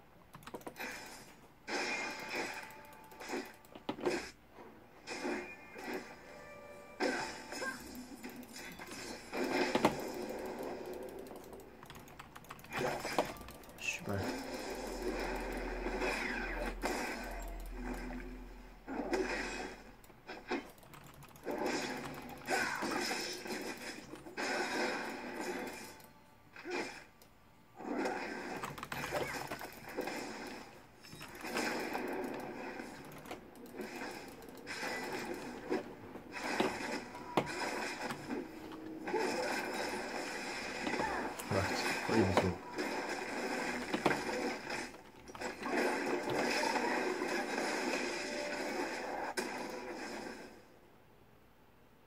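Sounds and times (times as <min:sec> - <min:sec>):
computer keyboard typing: 0:00.3 - 0:00.8, 0:09.8 - 0:14.0, 0:20.6 - 0:22.5, 0:28.6 - 0:29.8, 0:32.2 - 0:34.7.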